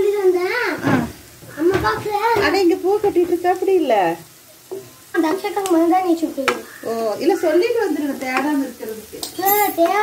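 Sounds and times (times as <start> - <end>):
vegetables frying in a wok: 0.0 - 10.0
spatula knocking against pan: 1.6 - 3.5, 8.3 - 8.6.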